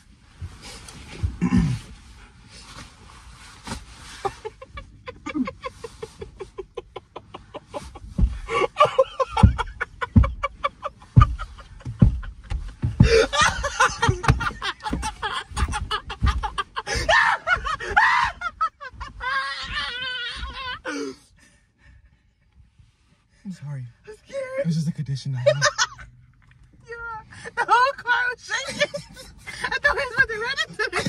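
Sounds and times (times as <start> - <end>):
people laughing: 4.3 - 12.2, 13.1 - 20.1, 25.4 - 26.1, 28.5 - 31.0
dull thumps: 7.5 - 20.8.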